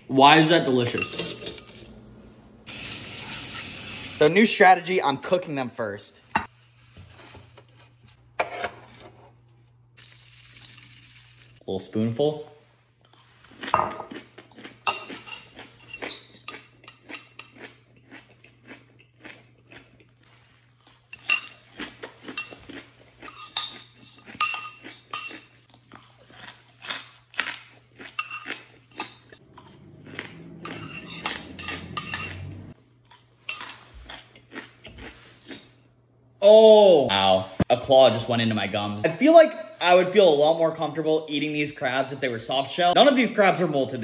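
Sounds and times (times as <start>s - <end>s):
metal spoon clinking against bowl: 1.0s - 1.9s, 30.7s - 32.4s.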